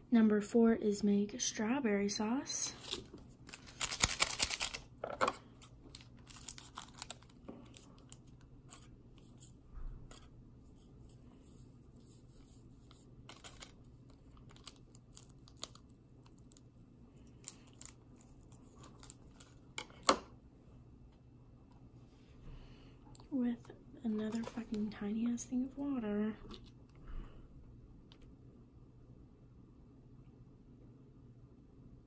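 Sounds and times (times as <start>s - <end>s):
packet tearing open: 2.8s - 4.9s, 5.9s - 8.9s, 13.3s - 16.6s, 17.4s - 19.6s
packet rustling and clicking: 2.8s - 9.5s, 12.9s - 16.7s, 17.3s - 20.2s.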